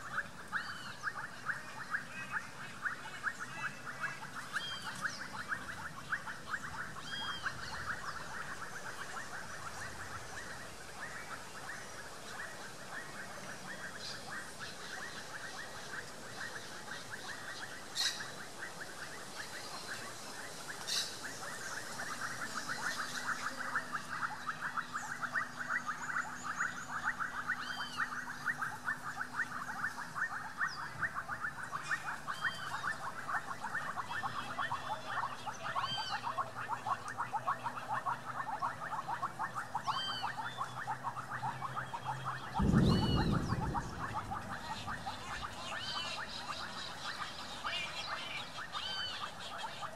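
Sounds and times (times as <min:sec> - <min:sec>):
pulsing chorus of calling animals: 0:00.0 - 0:49.9
high bird chirp: 0:39.8 - 0:49.5.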